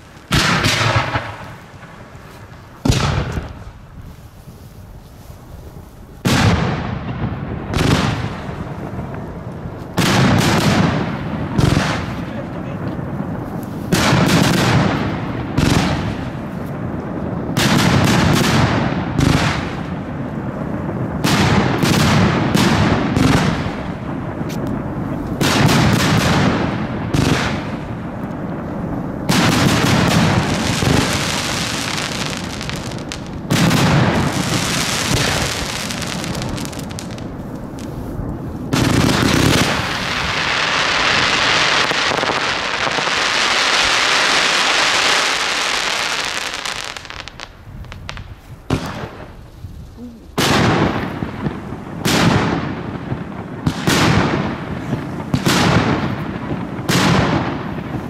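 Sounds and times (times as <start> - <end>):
dense fireworks hiss: 0.0 - 58.0
fireworks launch thumps: 2.8 - 3.7.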